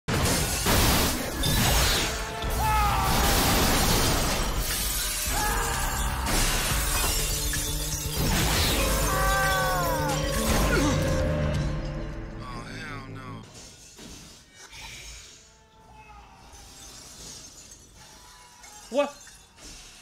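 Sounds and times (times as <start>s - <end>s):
glass shattering: 0.1s - 12.2s, 16.6s - 20.0s
action music score: 0.4s - 14.6s.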